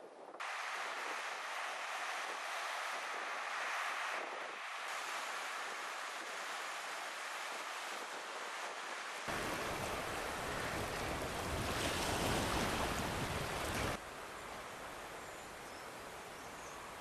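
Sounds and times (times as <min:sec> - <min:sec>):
wind: 0:00.0 - 0:17.0
waves washing over stony shore: 0:09.3 - 0:14.0.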